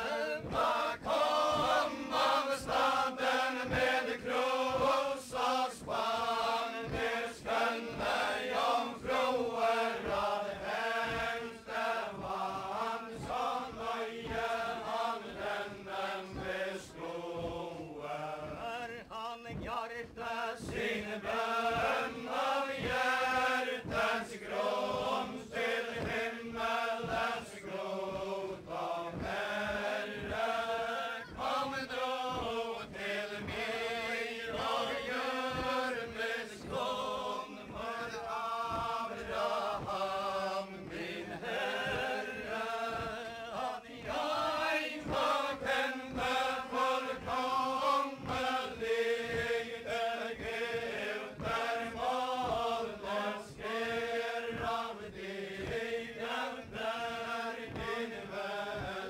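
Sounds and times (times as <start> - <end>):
feet stamping rhythmically: 0.0 - 59.0
group singing in unison: 0.0 - 59.0.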